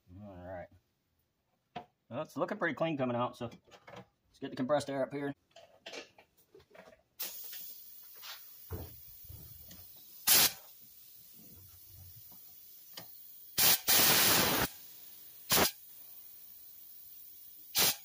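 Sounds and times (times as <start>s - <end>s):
compressed air blasts: 7.2s - 18.0s.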